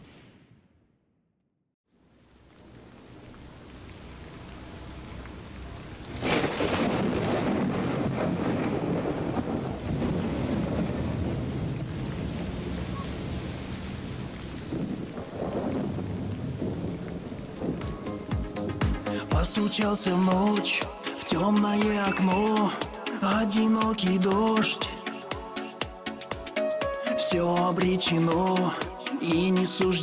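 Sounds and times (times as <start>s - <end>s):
heavy rain: 1.9s - 30.0s
thunder crack: 6.1s - 20.5s.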